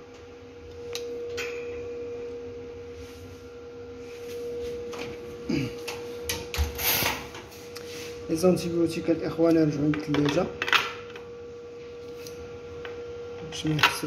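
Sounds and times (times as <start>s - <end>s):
lab equipment humming: 0.0s - 14.0s
rustling scrape: 6.9s - 8.2s.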